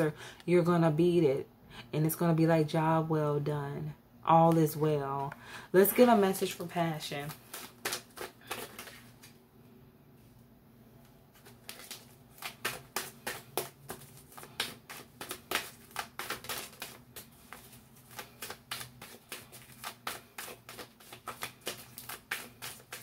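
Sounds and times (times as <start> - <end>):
cards being shuffled: 5.9 - 9.4, 11.3 - 23.0.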